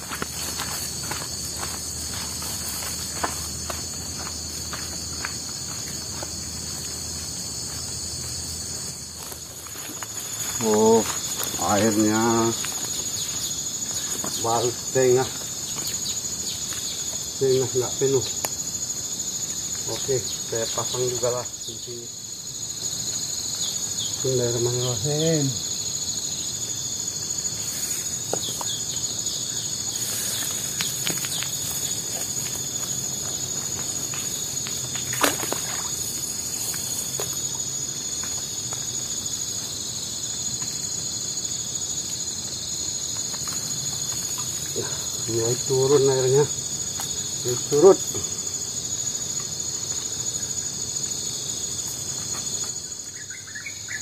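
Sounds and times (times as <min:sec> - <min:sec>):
crickets and forest insects chirping: 0:00.0 - 0:54.0.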